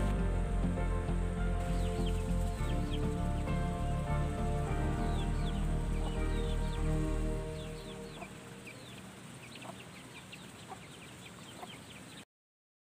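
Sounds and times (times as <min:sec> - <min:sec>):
background music: 0:00.0 - 0:09.4
chicks peeping: 0:01.1 - 0:12.2
chickens clucking: 0:07.6 - 0:12.2.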